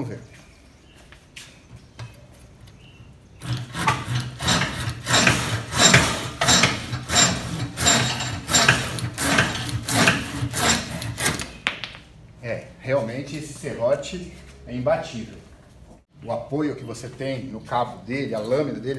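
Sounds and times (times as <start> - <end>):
saw cutting branch: 3.4 - 11.5.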